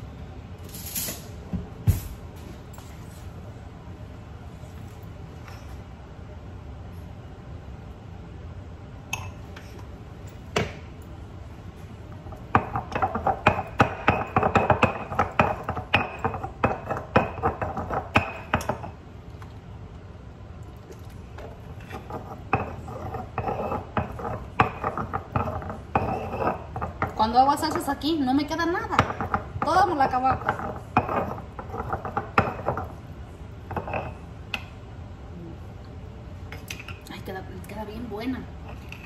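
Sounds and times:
stone pestle grinding in mortar: 12.6s - 18.8s, 21.8s - 27.2s, 29.0s - 32.9s.

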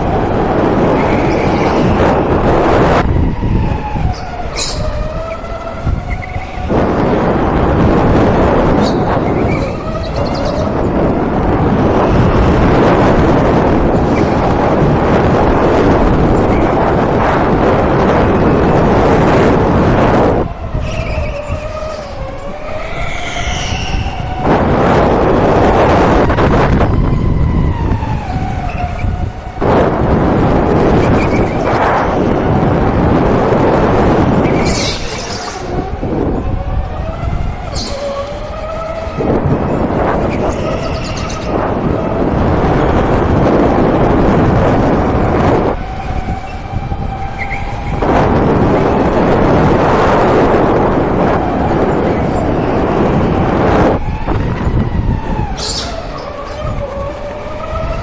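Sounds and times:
rushing wind: 0.0s - 58.0s
loud rushing noise: 5.8s - 28.4s.

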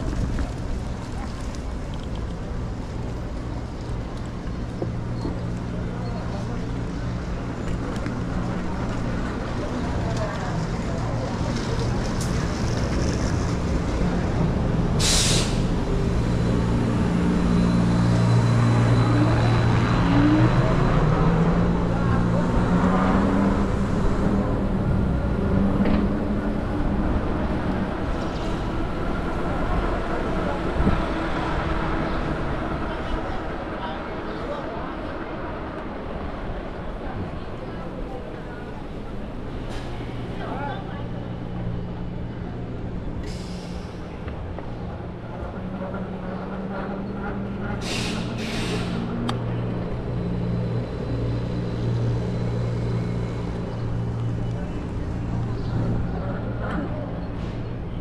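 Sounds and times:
city street traffic: 0.0s - 58.0s
vehicle engines running: 0.0s - 58.0s
air-brake hisses: 15.0s - 15.7s, 47.8s - 49.1s.

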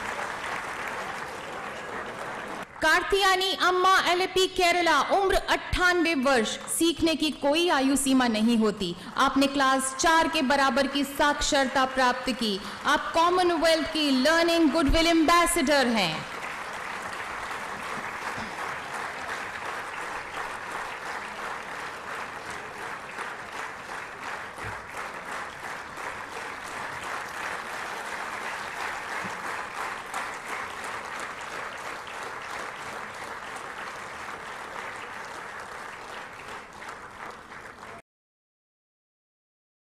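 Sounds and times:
audience applause: 0.0s - 2.8s, 16.0s - 38.0s.

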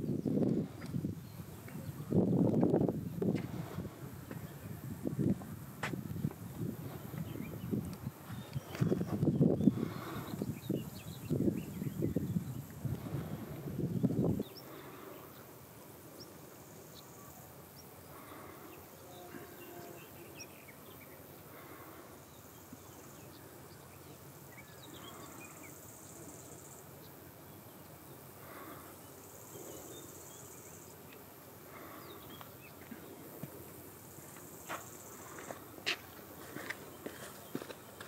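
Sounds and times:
insect buzzing: 4.7s - 37.0s.

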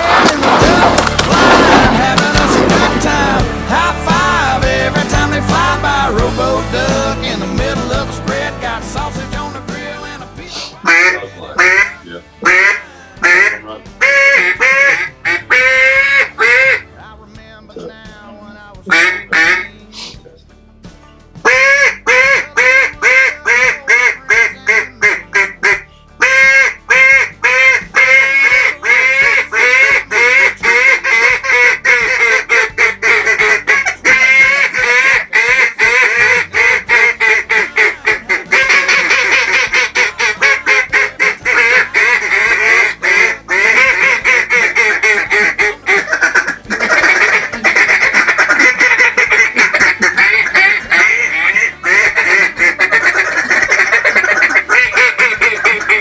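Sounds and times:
duck calls quacking: 10.5s - 16.9s, 18.9s - 20.1s, 21.4s - 56.0s.

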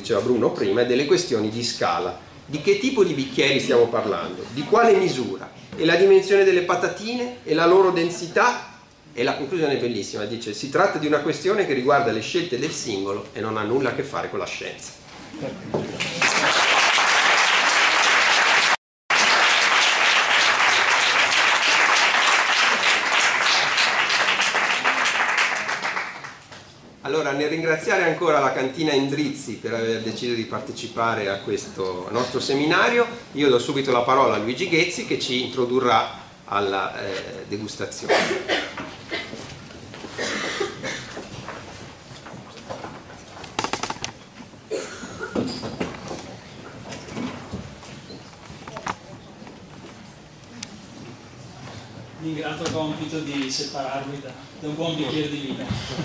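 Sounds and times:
audience applauding: 16.0s - 26.4s.

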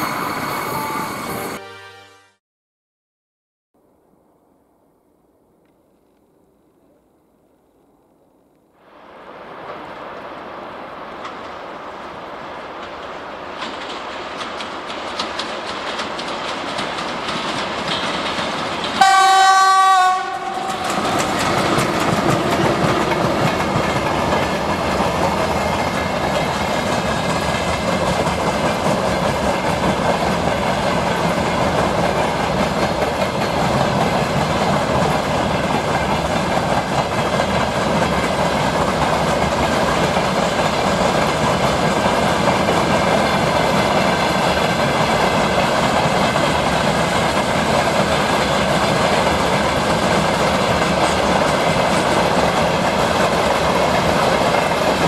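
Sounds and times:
electric locomotive passing: 0.0s - 1.9s, 8.9s - 55.0s
train horn blast: 1.6s - 2.4s, 19.0s - 21.0s
freight wagons rolling past: 20.2s - 55.0s.

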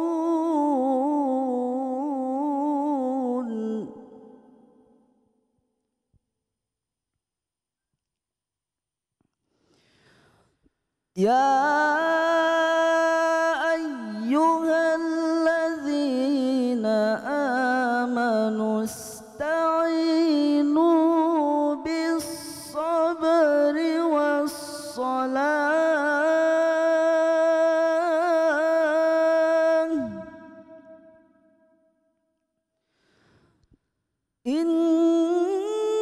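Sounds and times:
man reciting melodically: 0.0s - 4.0s, 11.2s - 30.8s, 34.5s - 36.0s.

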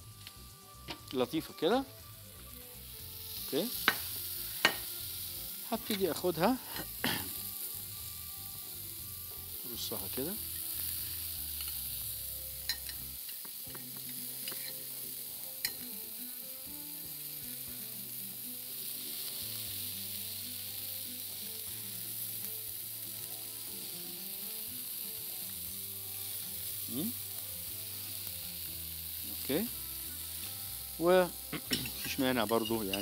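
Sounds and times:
food sizzling in a pan: 0.0s - 33.0s
fork clinking against a plate: 12.7s - 13.0s, 31.6s - 33.0s.

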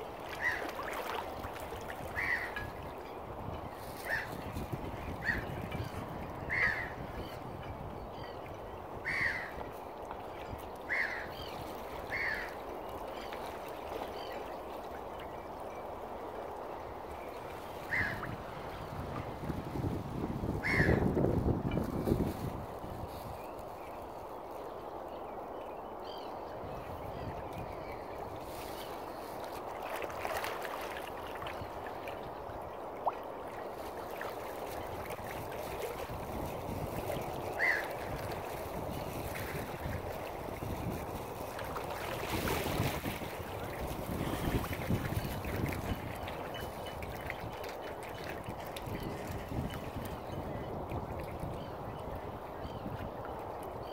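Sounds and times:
water lapping and gurgling: 0.0s - 23.6s, 26.1s - 53.9s
wind: 0.0s - 53.9s
gulls calling: 1.8s - 2.9s, 17.8s - 18.4s, 37.6s - 38.0s.

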